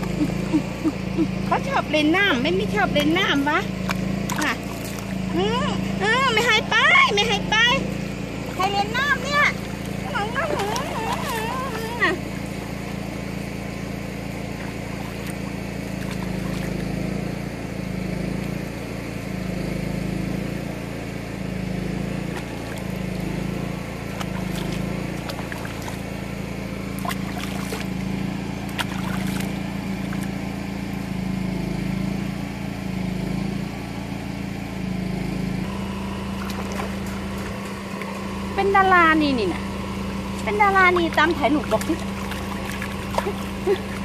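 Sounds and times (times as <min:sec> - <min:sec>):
motor humming: 0:00.0 - 0:44.0
water splashing in a basin: 0:02.9 - 0:05.3, 0:09.4 - 0:13.0, 0:14.5 - 0:17.0, 0:24.1 - 0:26.2, 0:26.9 - 0:28.1, 0:28.7 - 0:30.4, 0:36.3 - 0:38.2, 0:40.8 - 0:44.0.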